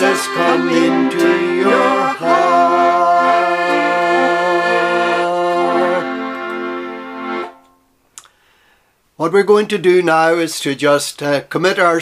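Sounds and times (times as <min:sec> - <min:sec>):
man and woman singing: 0:00.0 - 0:06.2
accordion playing chords: 0:00.0 - 0:07.8.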